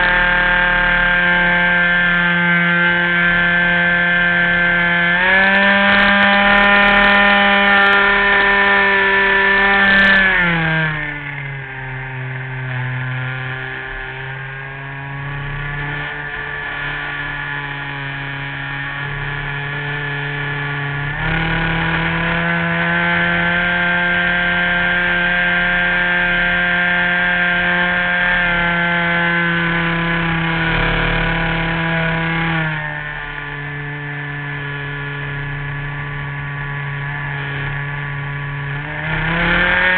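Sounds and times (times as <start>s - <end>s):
model airplane engine: 0.0s - 39.9s.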